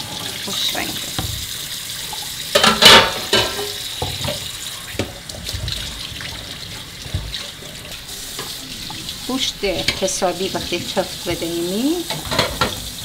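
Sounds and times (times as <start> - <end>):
water sloshing in a pot: 0.0 - 13.0
watery burst: 3.7 - 12.0.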